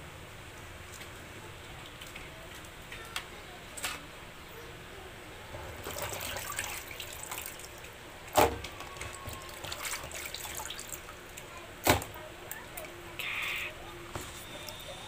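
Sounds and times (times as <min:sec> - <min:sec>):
water splashing in basin: 0:05.8 - 0:11.5.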